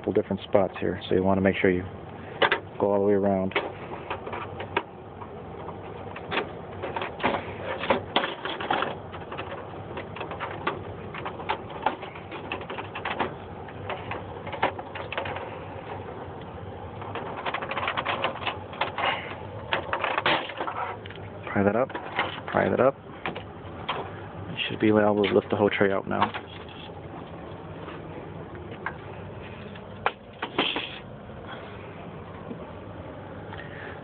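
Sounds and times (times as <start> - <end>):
plastic parts clattering: 5.7 - 16.0, 17.0 - 24.2, 25.0 - 31.0.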